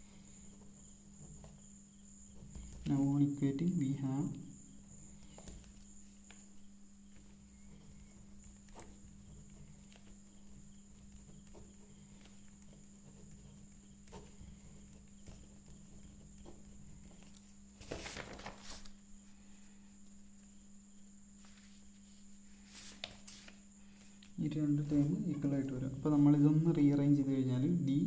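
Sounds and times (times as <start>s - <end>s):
paper rustling: 11.1s - 19.0s, 21.4s - 26.4s.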